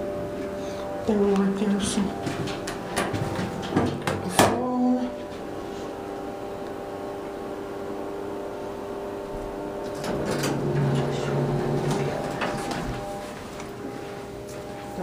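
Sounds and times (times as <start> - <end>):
elevator machine hum: 0.0 - 15.0
elevator knocks and clunks: 1.8 - 4.6, 9.8 - 13.3.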